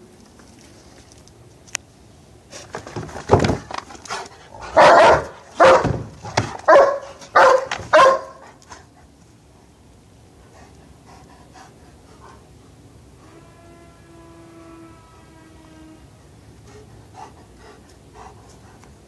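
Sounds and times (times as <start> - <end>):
dog barking: 4.6 - 8.5.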